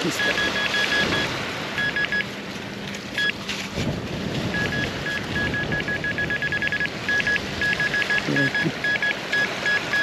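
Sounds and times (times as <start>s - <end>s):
metal detector beeps: 0.1s - 2.3s, 3.2s - 3.4s, 4.5s - 10.0s.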